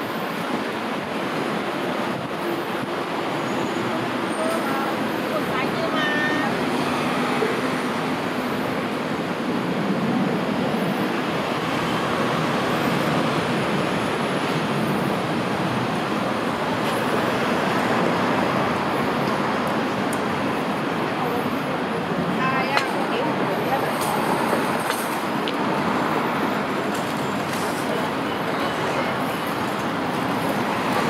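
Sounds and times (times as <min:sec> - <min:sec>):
city street traffic: 0:00.0 - 0:31.0.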